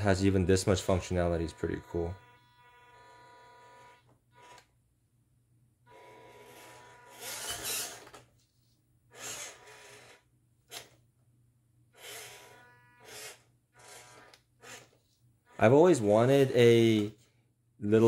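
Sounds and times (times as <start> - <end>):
toy car motor whirring: 0.8 - 4.7, 5.9 - 8.3, 9.1 - 11.0, 11.9 - 15.7.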